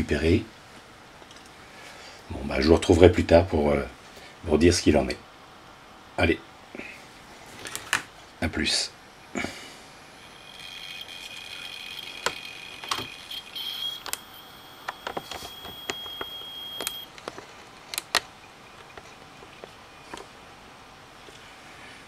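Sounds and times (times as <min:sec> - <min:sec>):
hard disk drive whistle: 0:10.0 - 0:17.1
sharp clicks: 0:14.0 - 0:14.3.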